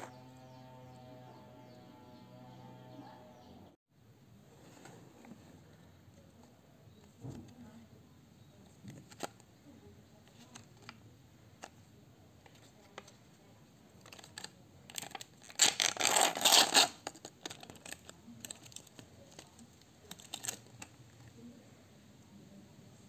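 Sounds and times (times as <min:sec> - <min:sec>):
plastic packaging crinkling: 0:14.1 - 0:20.9
backing tearing off a blister pack: 0:14.2 - 0:18.9.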